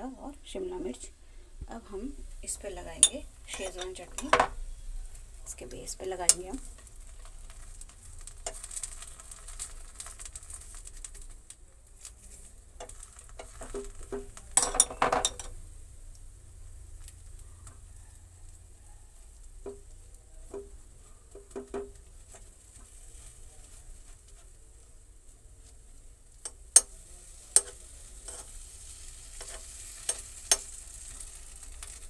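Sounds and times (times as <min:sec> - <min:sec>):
light sizzle: 0:00.0 - 0:32.0
spoon scraping a pan: 0:02.5 - 0:04.6, 0:05.5 - 0:10.8, 0:12.2 - 0:15.6, 0:20.5 - 0:24.6, 0:25.6 - 0:32.0
spoon clatter: 0:12.8 - 0:15.5, 0:29.4 - 0:30.8.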